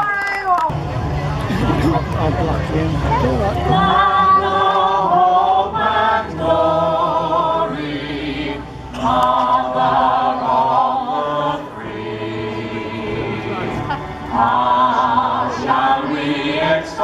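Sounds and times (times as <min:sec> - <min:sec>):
group singing in chorus: 0:03.5 - 0:17.0.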